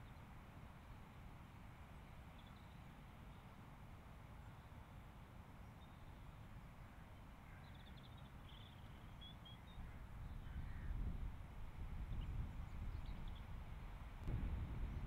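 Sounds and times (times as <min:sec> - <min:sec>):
faint distant bird calls: 0:00.0 - 0:13.7
wind rumble on microphone: 0:09.8 - 0:15.0.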